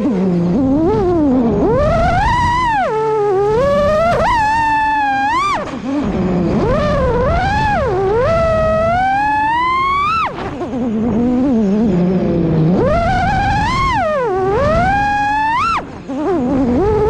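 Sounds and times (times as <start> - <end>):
drone motors whining: 0.0 - 17.0.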